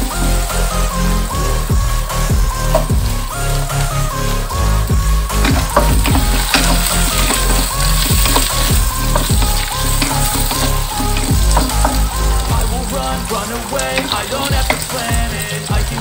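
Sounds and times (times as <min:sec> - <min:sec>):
background music: 0:00.0 - 0:16.0
wooden spatula knocking: 0:05.5 - 0:16.0.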